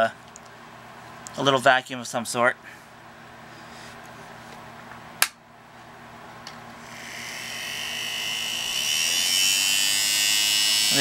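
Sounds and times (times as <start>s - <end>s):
small motor whining: 6.8s - 11.0s.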